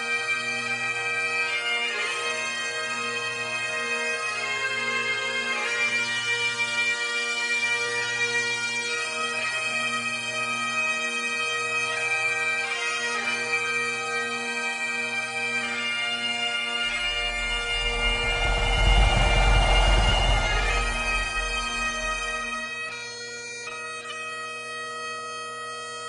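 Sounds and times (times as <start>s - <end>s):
deep low sound: 16.9s - 22.6s.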